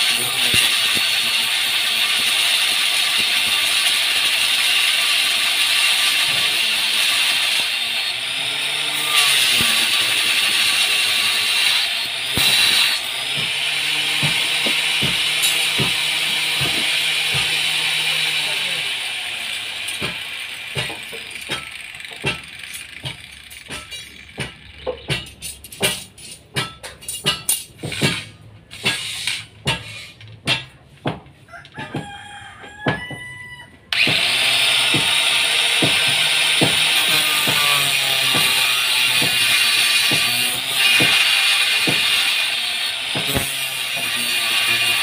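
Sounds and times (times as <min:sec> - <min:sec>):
sharp knocks and clanks: 0:05.8 - 0:07.4, 0:08.9 - 0:17.8, 0:19.8 - 0:33.4, 0:34.0 - 0:42.4, 0:43.1 - 0:45.0
rooster crowing: 0:31.4 - 0:33.9.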